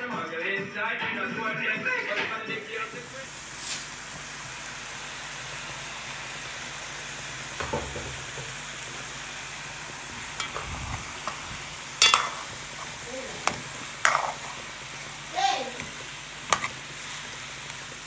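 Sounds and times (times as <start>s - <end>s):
chicken sizzling in a pot: 2.7s - 18.0s
metal spoon stirring: 10.4s - 11.4s, 12.0s - 15.0s, 15.8s - 16.9s
spoon knocking against pot: 12.0s - 12.4s.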